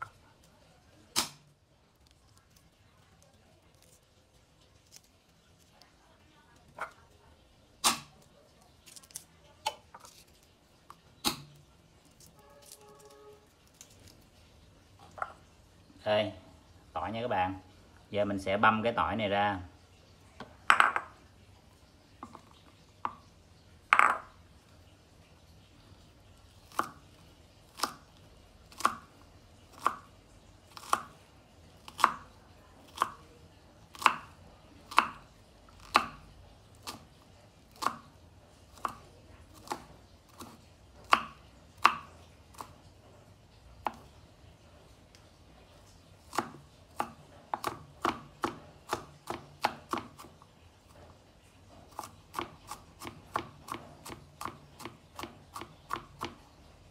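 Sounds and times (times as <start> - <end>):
knife chopping on wooden board: 26.7 - 27.0, 27.7 - 28.0, 28.7 - 29.1, 29.7 - 30.1, 30.7 - 31.2, 31.8 - 32.3, 33.9 - 34.3, 34.9 - 35.2, 35.8 - 36.2, 38.7 - 42.8, 46.3 - 50.4, 51.9 - 56.4.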